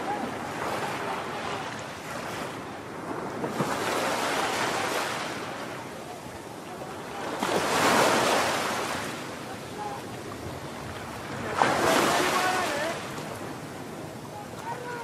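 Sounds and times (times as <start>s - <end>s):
ocean surf breaking: 0.0s - 15.0s.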